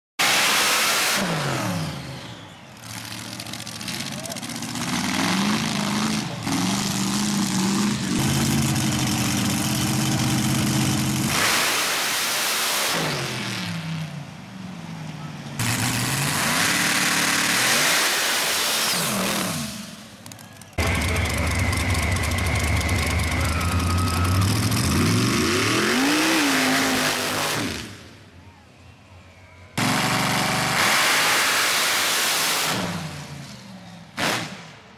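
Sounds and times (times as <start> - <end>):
buggy engine at full throttle: 0.2 - 11.9, 12.9 - 28.1, 29.8 - 31.8
crackling exhaust: 15.0 - 25.4.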